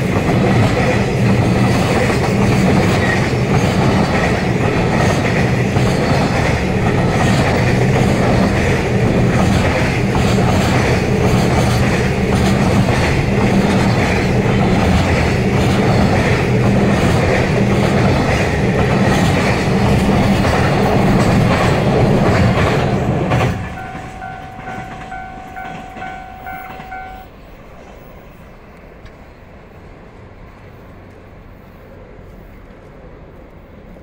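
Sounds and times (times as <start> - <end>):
freight train wheels clattering: 0.0 - 28.2
level-crossing warning bell: 23.4 - 27.4.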